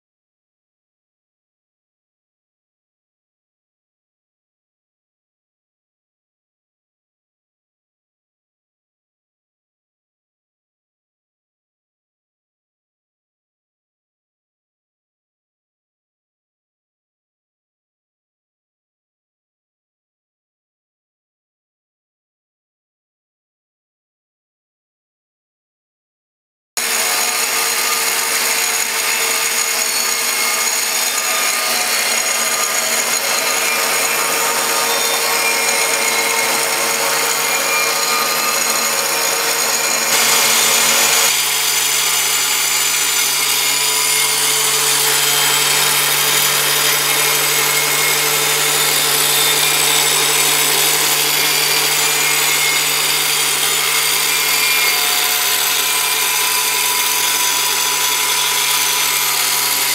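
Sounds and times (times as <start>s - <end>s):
angle grinder cutting steel: 26.8s - 59.9s.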